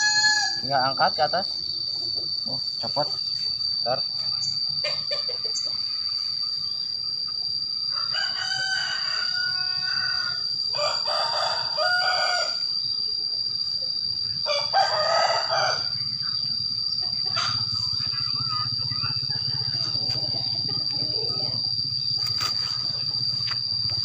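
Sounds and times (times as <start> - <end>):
rooster crowing: 0.0 - 2.4, 7.5 - 13.0, 13.9 - 24.0
high-pitched insect drone: 0.0 - 24.0.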